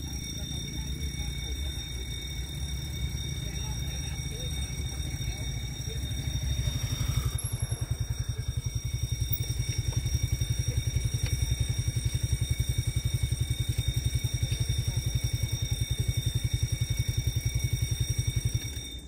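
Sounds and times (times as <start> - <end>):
motorcycle engine idling: 0.0 - 19.0.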